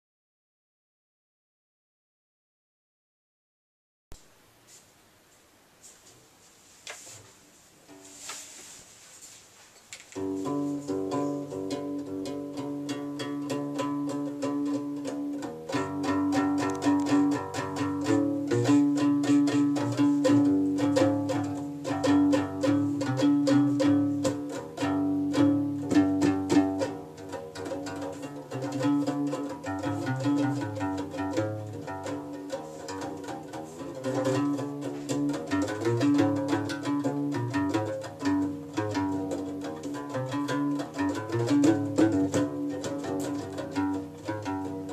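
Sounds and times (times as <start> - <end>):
plucked bass lute: 10.2 - 44.9.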